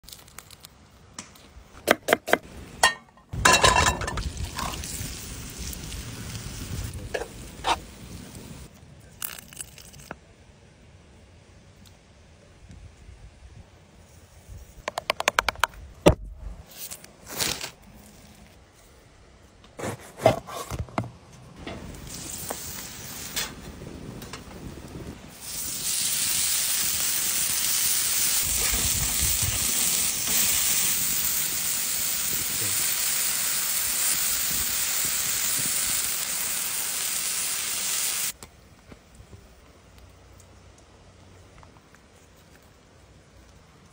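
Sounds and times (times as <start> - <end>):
burger patties sizzling on griddle: 25.3 - 38.4.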